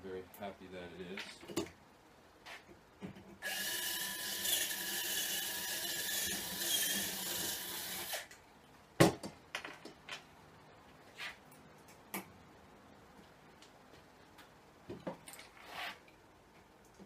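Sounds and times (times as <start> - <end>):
power drill drilling: 3.4 - 8.3.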